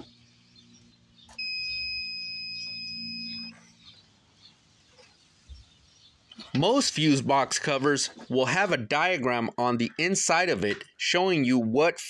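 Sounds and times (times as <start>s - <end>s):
multimeter continuity beep: 1.3s - 3.7s.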